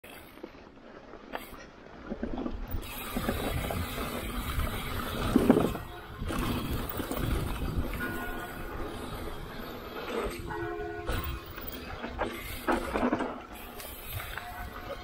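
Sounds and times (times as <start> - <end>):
bike rattling: 0.0 - 15.0
bike tyres on gravel: 0.0 - 15.0
wind rumble on microphone: 2.4 - 9.6
bike clattering over wooden ramp: 11.0 - 13.7.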